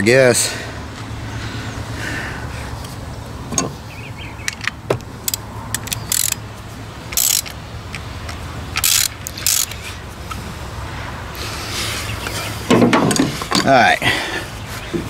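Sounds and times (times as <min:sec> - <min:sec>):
ratchet wrench clicking: 0:04.5 - 0:06.4, 0:07.1 - 0:09.9.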